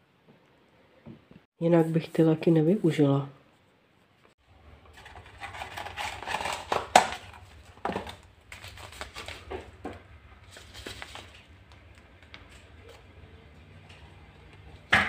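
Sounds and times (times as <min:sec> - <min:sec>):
paper sachet crinkling: 0:04.9 - 0:09.8, 0:10.4 - 0:13.3
paper and card rustling and tearing: 0:04.9 - 0:13.5.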